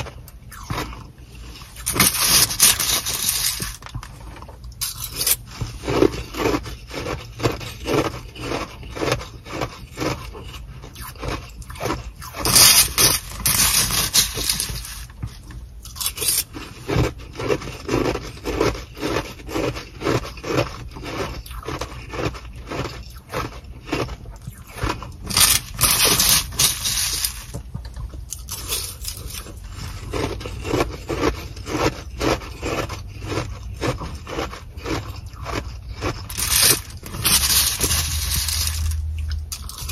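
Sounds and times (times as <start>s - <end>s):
metal spoon scraping ice: 0.0s - 27.6s, 28.3s - 39.9s
ice being chewed: 0.0s - 39.9s
plastic bag crinkling: 1.5s - 5.4s, 12.4s - 15.3s, 24.9s - 27.6s, 36.0s - 39.9s.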